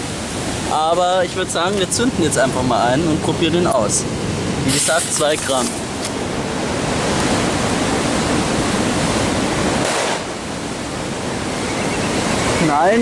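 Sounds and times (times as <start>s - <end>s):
sea surf: 0.0s - 13.0s
firecracker bang: 9.8s - 10.4s.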